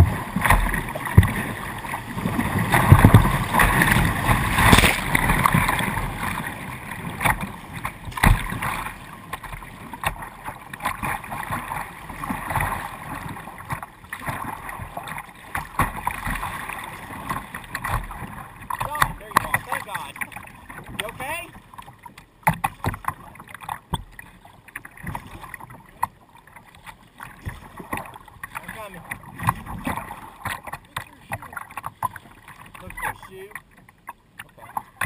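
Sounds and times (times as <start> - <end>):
sharp water splashes: 0.0 - 21.6.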